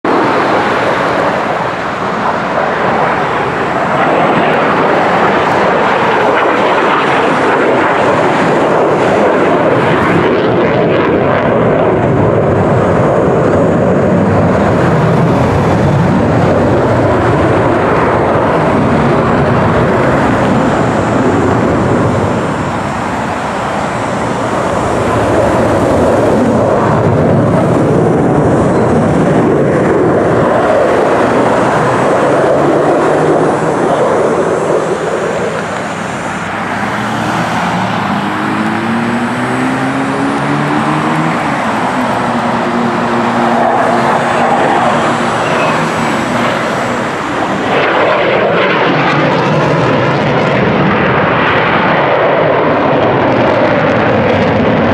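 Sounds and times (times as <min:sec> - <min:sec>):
jet engine roaring: 0:00.0 - 0:54.9.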